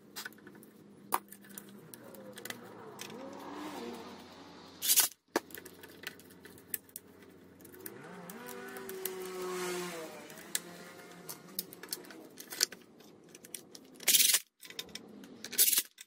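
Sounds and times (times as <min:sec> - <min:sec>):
plastic housing clicks and rattles: 0:00.1 - 0:03.5, 0:04.8 - 0:09.3, 0:10.3 - 0:16.0.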